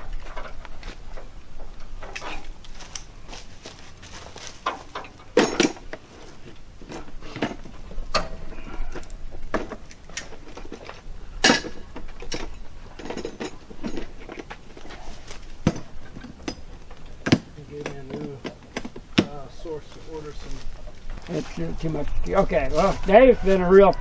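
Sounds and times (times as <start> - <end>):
metallic clicks and clanks: 4.6 - 19.4.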